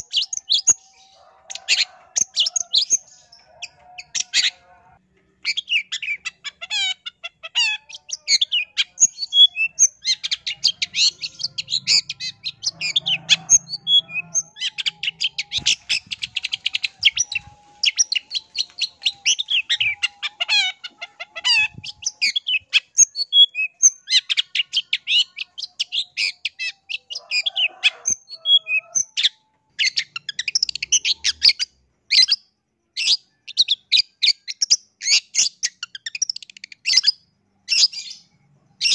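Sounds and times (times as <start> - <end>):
bird singing high chattering notes: 5.4 - 27.2.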